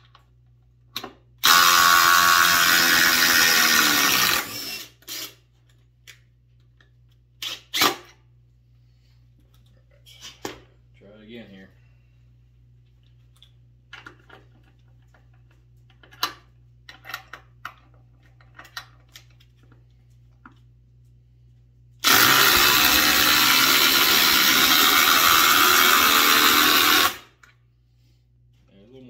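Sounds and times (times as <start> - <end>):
impact drivers hammering screws: 1.4 - 5.4, 22.0 - 27.3.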